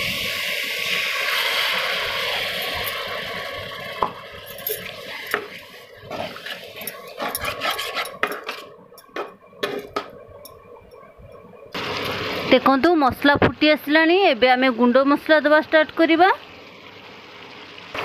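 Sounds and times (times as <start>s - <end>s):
water hissing in hot pan: 0.0s - 8.2s, 11.7s - 18.0s
metal spatula scraping a pan: 6.1s - 8.8s.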